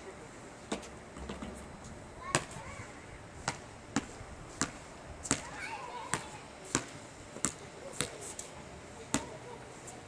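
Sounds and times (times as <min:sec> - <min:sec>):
basketball bouncing on asphalt: 0:00.7 - 0:02.7, 0:03.4 - 0:08.2, 0:09.1 - 0:09.4.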